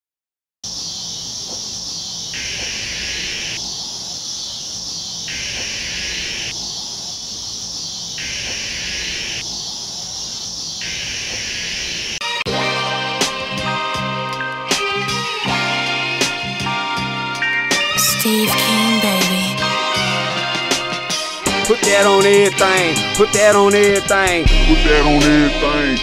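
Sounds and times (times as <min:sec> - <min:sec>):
insect chorus hiss: 0:00.7 - 0:12.1
music: 0:12.2 - 0:26.0.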